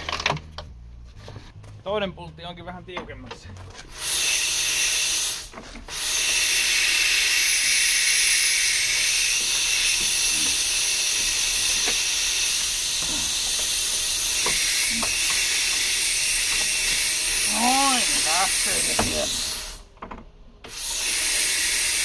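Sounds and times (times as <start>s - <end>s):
compressed air hissing: 3.8s - 20.0s, 20.6s - 22.0s.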